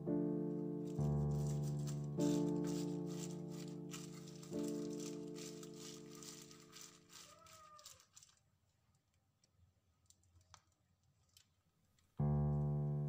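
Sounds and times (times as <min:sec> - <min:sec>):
piano music: 0:00.0 - 0:07.2, 0:12.2 - 0:13.0.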